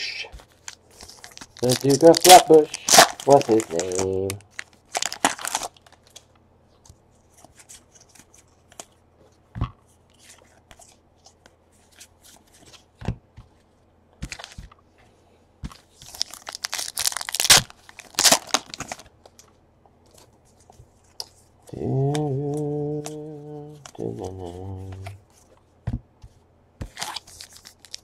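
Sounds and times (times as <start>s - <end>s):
foil wrapper tearing: 1.0s - 6.0s, 16.1s - 19.0s, 27.0s - 28.0s
man humming: 21.7s - 25.2s.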